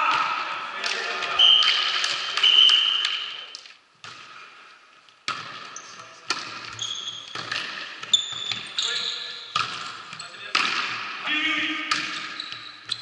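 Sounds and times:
ball and court noises: 0.0s - 13.0s
referee whistle blasts: 2.4s - 3.2s.

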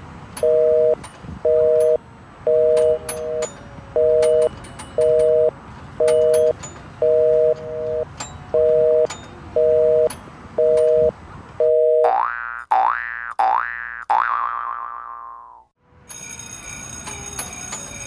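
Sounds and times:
telephone busy signal: 0.4s - 12.1s.

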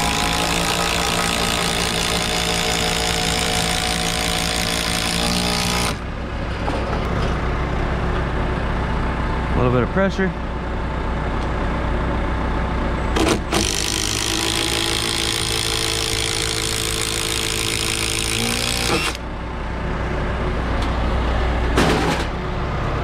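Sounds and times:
impact driver hammering screw: 0.0s - 6.0s, 13.2s - 19.2s.

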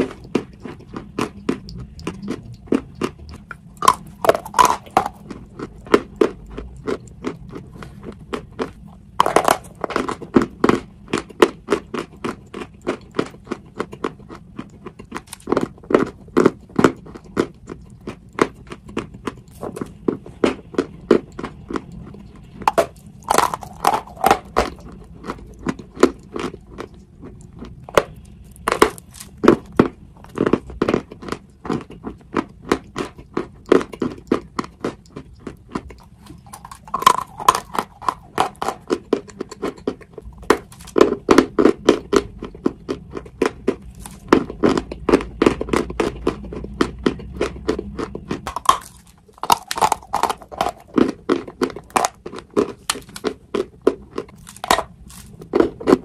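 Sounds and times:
person crunching chalk: 3.0s - 14.1s, 22.6s - 31.8s, 35.7s - 42.3s, 43.4s - 46.6s, 48.4s - 56.0s.

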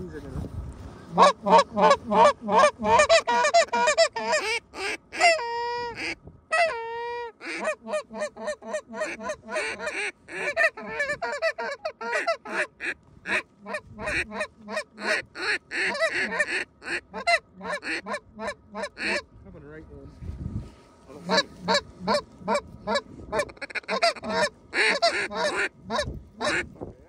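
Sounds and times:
goose honking and clucking: 1.1s - 19.3s, 21.2s - 26.7s.

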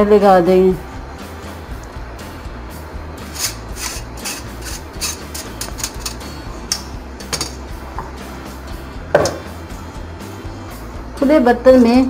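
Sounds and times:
spoon scraping rice in metal pot: 3.2s - 6.4s.

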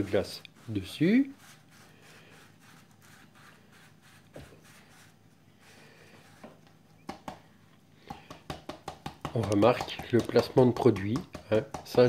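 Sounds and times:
plastic shaker taps and rustles: 6.4s - 12.0s.

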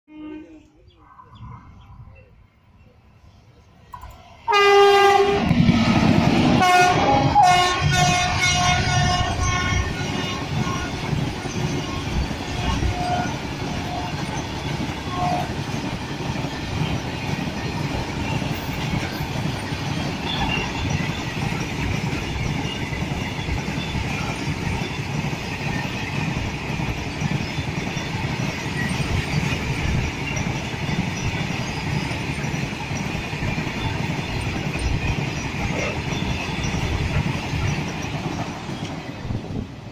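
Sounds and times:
train wheels rumbling on rail: 3.4s - 39.9s
locomotive horn blasts: 4.5s - 5.5s, 6.6s - 11.0s, 12.5s - 14.2s, 15.1s - 15.5s.

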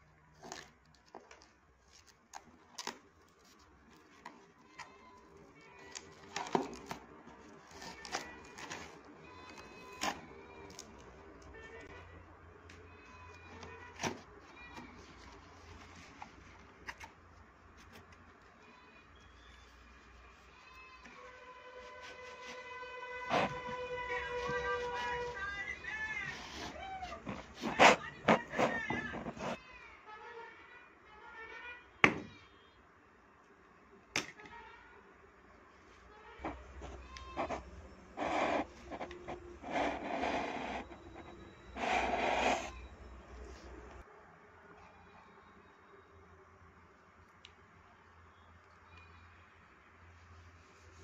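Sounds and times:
cardboard rustling and scraping: 13.0s - 18.7s, 19.4s - 29.6s.

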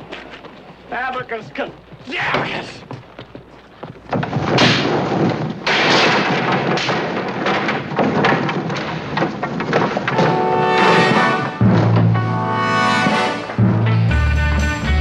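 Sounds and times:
wooden wagon crashing to ground: 3.9s - 13.9s.

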